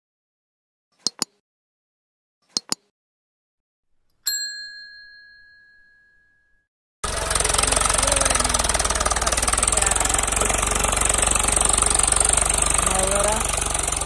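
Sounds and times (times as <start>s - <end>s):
bell ding: 4.3s - 6.6s.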